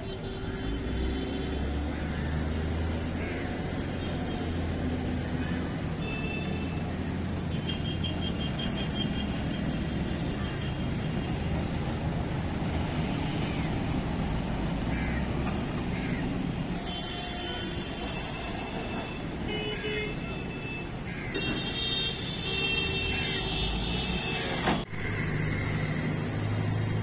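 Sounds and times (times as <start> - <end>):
traffic engines rumbling: 0.0 - 27.0
car horns: 7.5 - 10.9, 16.8 - 24.9.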